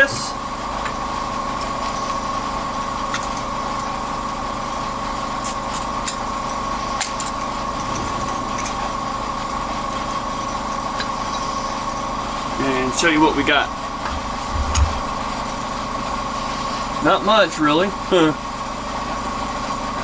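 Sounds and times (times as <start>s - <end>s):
milling machine spindle whining: 7.5s - 17.2s.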